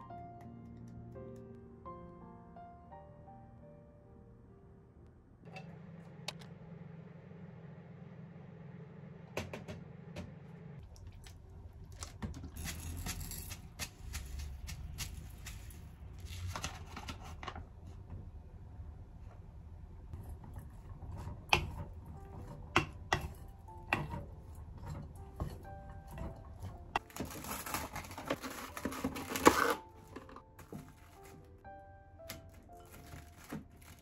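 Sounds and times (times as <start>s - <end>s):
paper bag rustling: 27.0s - 31.6s, 32.4s - 34.0s.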